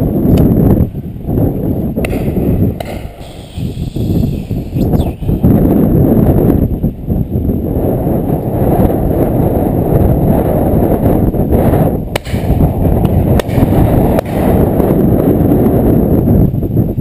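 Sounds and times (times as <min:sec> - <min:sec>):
wind buffeting microphone: 0:00.0 - 0:17.0
sharp cracks: 0:02.0 - 0:05.0, 0:12.1 - 0:15.1.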